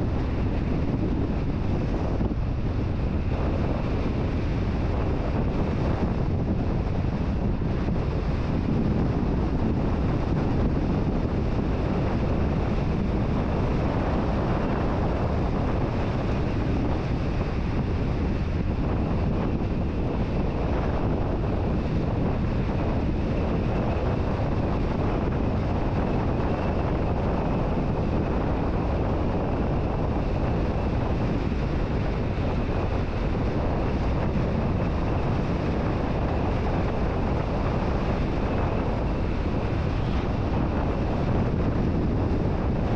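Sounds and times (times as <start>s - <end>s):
wind rumbling on microphone: 0.0s - 42.9s
car road noise: 27.5s - 42.9s.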